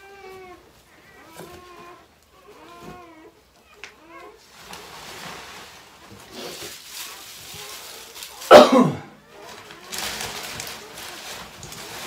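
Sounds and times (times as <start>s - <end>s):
wood shavings rustling: 4.4s - 12.0s
person coughing: 8.5s - 9.1s.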